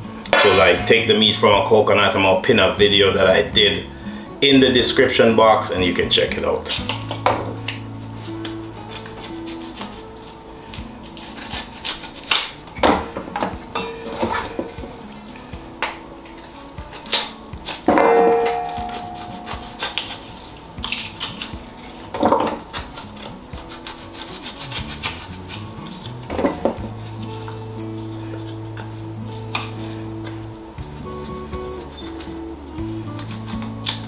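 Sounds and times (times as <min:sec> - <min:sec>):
metal knock on steel bowl: 0:00.4 - 0:01.2
knife scraping coconut shell: 0:07.9 - 0:12.7, 0:16.3 - 0:34.0.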